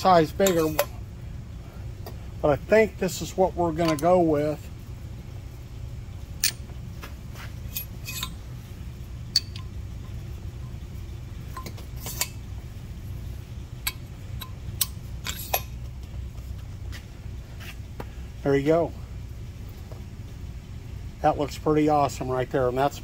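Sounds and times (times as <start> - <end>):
steady low hum: 0.0 - 23.0
light metallic clicks and taps: 3.8 - 4.1, 9.3 - 10.8, 13.8 - 16.7.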